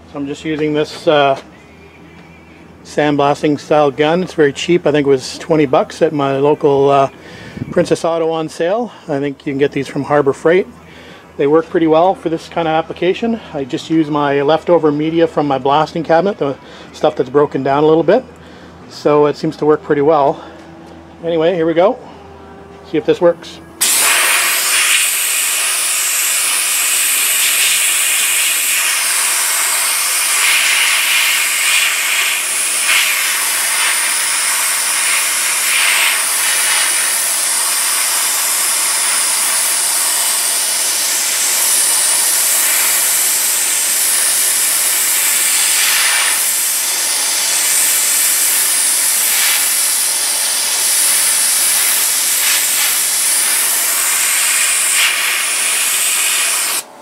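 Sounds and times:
sandblasting gun hissing: 23.8s - 56.9s.

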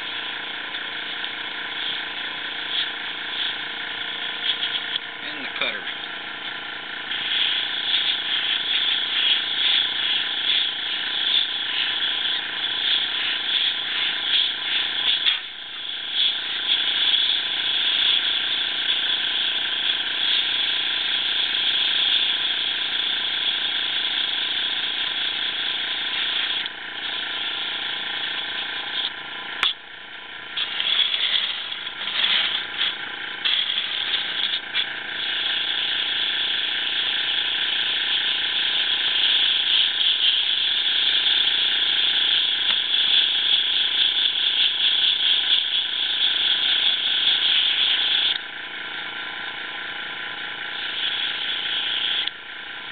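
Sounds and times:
airbrush hissing: 0.0s - 29.7s, 30.5s - 48.4s, 49.9s - 52.3s
steady hum: 0.0s - 52.9s.

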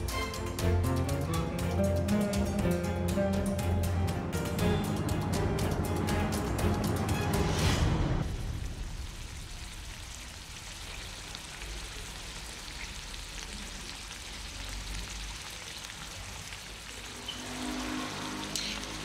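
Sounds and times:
meat sizzling in a frying pan: 9.0s - 19.0s.

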